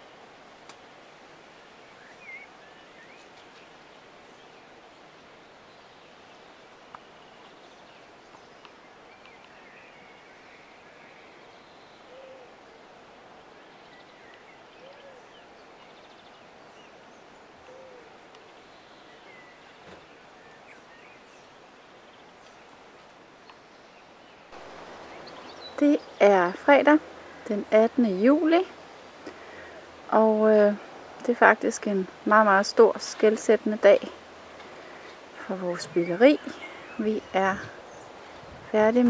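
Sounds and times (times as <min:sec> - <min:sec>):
low hooting calls: 0:12.0 - 0:12.6, 0:17.5 - 0:18.3.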